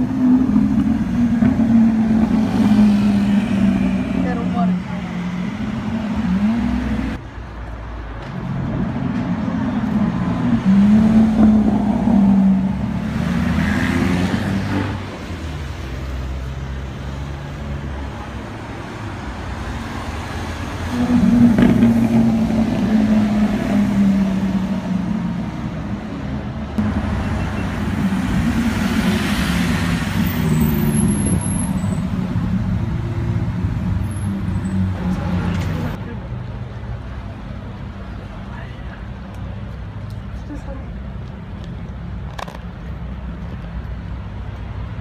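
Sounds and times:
road noise: 0.0s - 45.0s
supercar engines revving: 19.6s - 38.2s.

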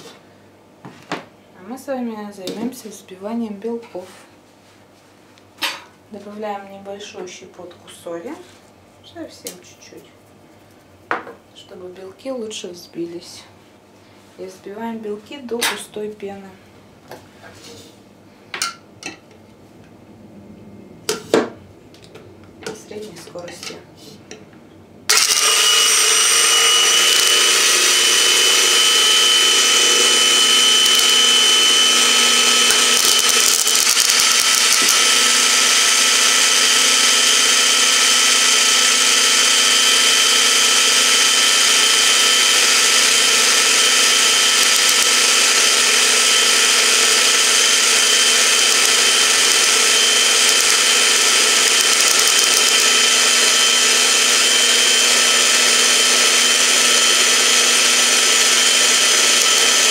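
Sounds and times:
electric hand mixer whining: 25.1s - 59.9s.

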